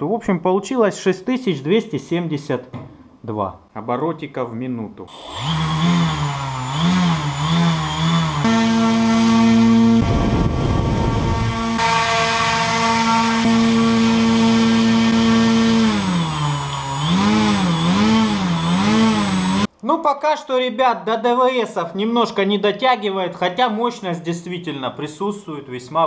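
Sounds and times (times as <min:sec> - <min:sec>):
electric motor whining: 0:05.1 - 0:19.7
rush of air: 0:10.0 - 0:11.5.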